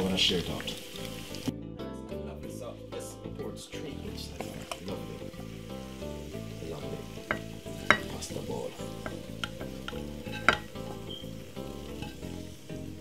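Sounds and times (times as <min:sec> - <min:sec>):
frying pan sizzling: 0:00.0 - 0:01.5, 0:04.0 - 0:13.0
spoon knocking against pan: 0:07.2 - 0:08.2, 0:08.9 - 0:11.2
wooden spoon scraping pan: 0:09.0 - 0:11.1.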